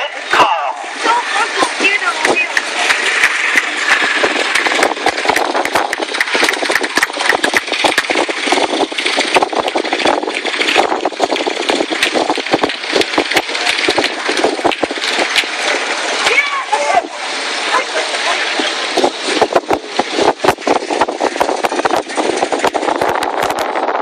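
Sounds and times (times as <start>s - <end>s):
irregular crackle: 1.6s - 16.4s.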